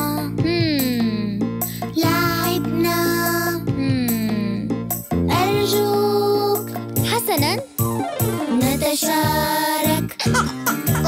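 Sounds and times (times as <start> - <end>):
children's song music: 0.0 - 11.0.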